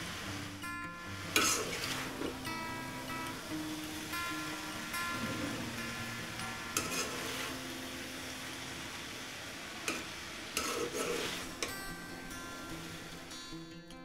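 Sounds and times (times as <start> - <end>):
steady sizzle: 0.0 - 14.0
spatula stirring pasta in pan: 1.1 - 13.5
spatula clinking against pan: 1.3 - 2.3, 4.5 - 8.1.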